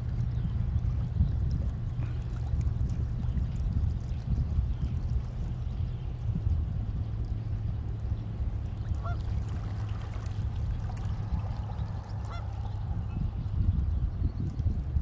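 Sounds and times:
steady low rumble: 0.0 - 15.0
waterbird honking: 8.9 - 9.4, 12.0 - 12.8.

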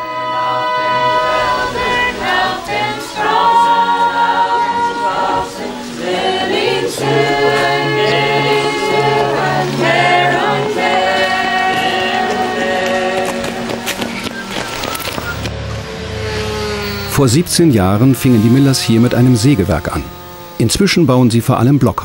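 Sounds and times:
choir singing a cappella: 0.0 - 14.2.

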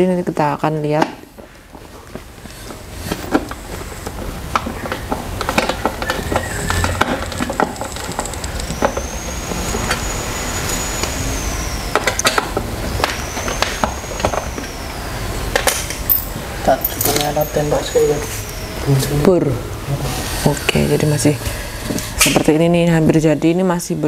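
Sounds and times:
chair parts clicking and knocking: 2.7 - 9.2
high thin whistling tone: 7.7 - 15.4.

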